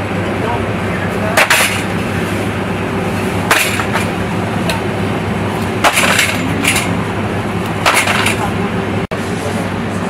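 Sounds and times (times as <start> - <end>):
boxes and tubs clattering: 3.5 - 4.1, 5.8 - 7.0, 7.8 - 8.5.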